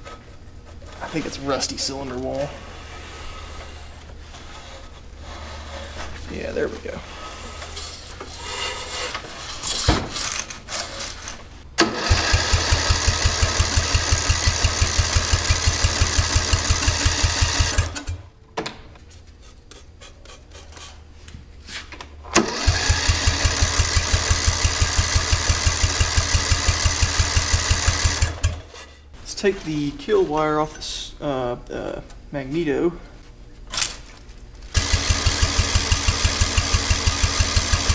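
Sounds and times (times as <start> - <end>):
small engine cranking by starter: 11.8 - 18.2, 22.4 - 28.6, 34.7 - 37.9.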